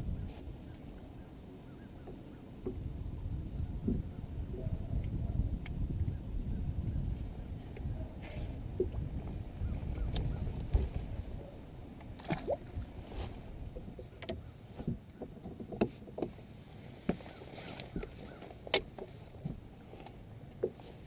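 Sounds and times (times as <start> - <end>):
knocks and clicks of fishing gear: 2.0 - 2.8, 13.7 - 16.4, 17.0 - 20.9
water washing against hull: 7.1 - 21.0.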